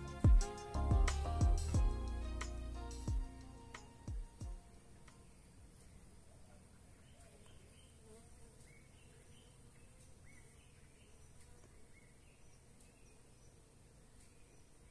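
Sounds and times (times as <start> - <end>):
bees buzzing: 0.0 - 4.6.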